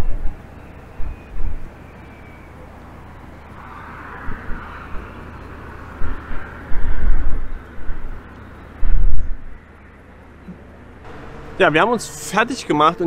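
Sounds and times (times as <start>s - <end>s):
wind buffeting microphone: 0.0s - 1.8s, 2.6s - 9.8s.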